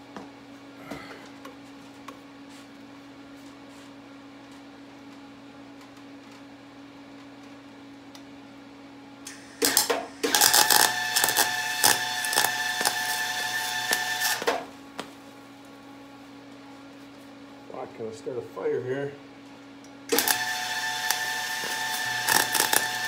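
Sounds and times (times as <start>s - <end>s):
welding arc crackling and buzzing: 9.2s - 14.7s, 20.1s - 23.0s.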